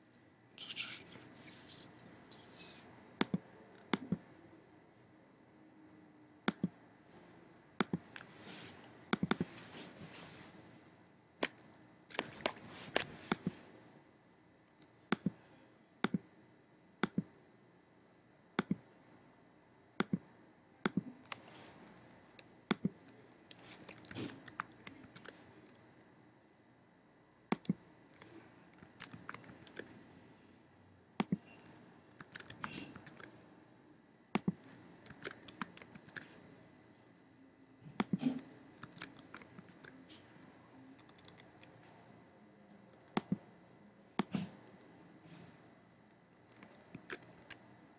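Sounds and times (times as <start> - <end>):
computer mouse clicks: 2.6 - 4.2, 6.5 - 6.8, 7.8 - 8.3, 9.1 - 9.5, 14.7 - 15.4, 16.0 - 16.2, 17.0 - 17.3, 18.6 - 18.8, 20.0 - 25.8, 27.5 - 29.9, 31.2 - 33.3, 34.4 - 36.4, 38.0 - 41.9, 42.7 - 43.4, 46.5 - 47.6
keyboard typing: 20.9 - 25.8, 27.5 - 29.9, 31.2 - 33.3, 34.4 - 36.4, 38.0 - 41.8, 46.5 - 47.6.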